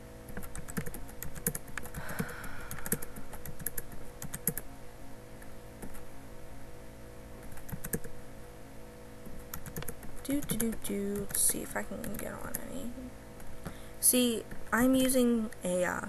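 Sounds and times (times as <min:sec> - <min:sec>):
computer keyboard typing: 0:00.3 - 0:04.6, 0:07.4 - 0:08.1, 0:09.4 - 0:12.8.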